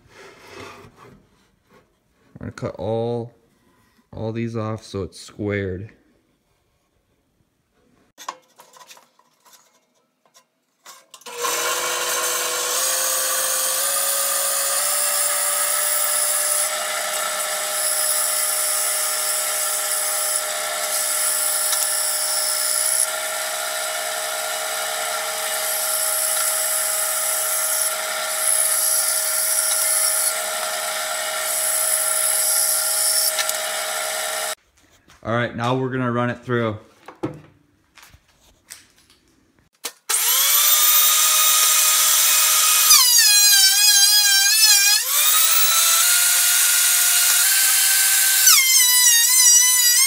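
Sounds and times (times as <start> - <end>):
bandsaw cutting wood: 11.2 - 34.6, 40.1 - 50.0.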